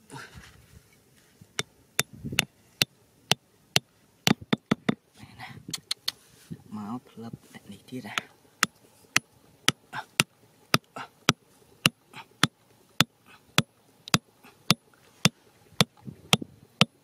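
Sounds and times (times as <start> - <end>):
hammer tapping bamboo stakes: 3.8 - 5.0, 8.1 - 17.0.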